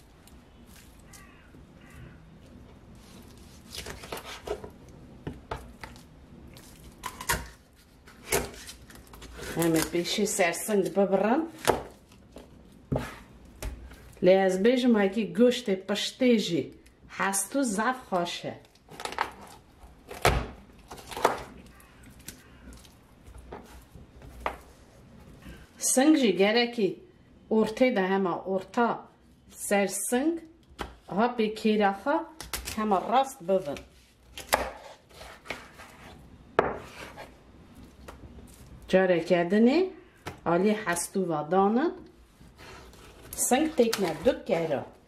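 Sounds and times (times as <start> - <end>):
meat being handled: 0.1 - 2.0.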